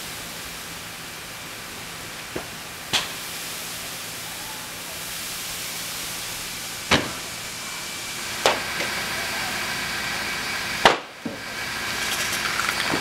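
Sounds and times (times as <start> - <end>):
fire rushing: 0.0 - 13.0
sharp explosive cracks: 6.9 - 7.3.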